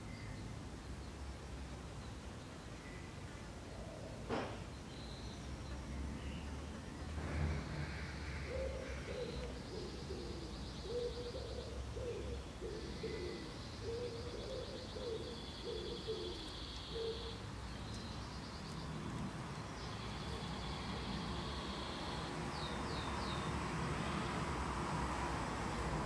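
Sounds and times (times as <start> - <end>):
pigeon cooing: 7.8 - 17.4.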